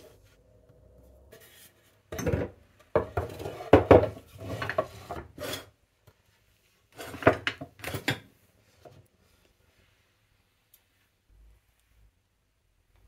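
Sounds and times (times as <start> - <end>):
wooden box scraping on worktop: 1.3 - 5.7, 7.0 - 8.0.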